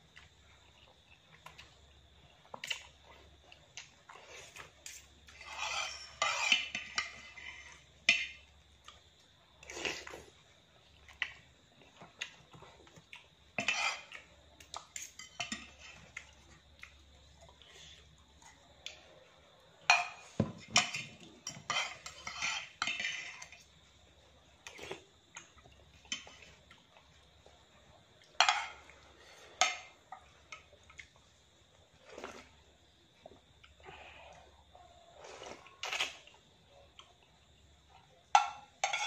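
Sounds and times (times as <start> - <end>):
cutlery scraping a ceramic plate: 4.8 - 8.3, 13.6 - 14.2, 19.9 - 23.6, 38.3 - 39.0.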